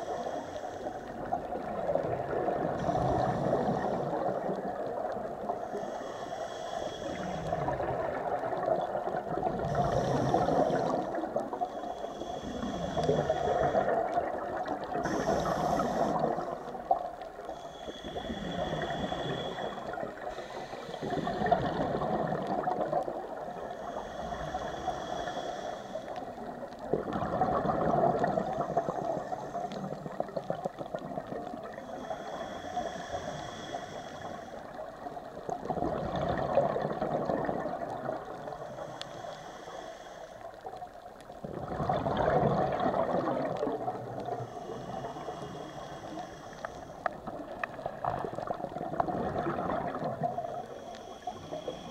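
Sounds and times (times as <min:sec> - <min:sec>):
regulator hissing inhale: 0:00.0 - 0:01.7, 0:02.7 - 0:08.7, 0:09.6 - 0:26.9, 0:28.2 - 0:35.6, 0:38.2 - 0:40.8, 0:43.5 - 0:48.8, 0:49.9 - 0:51.9
gurgling exhaled bubbles: 0:01.1 - 0:05.6, 0:07.0 - 0:11.6, 0:12.3 - 0:17.3, 0:18.0 - 0:25.0, 0:26.4 - 0:32.6, 0:34.9 - 0:38.6, 0:41.3 - 0:45.6, 0:47.0 - 0:51.9.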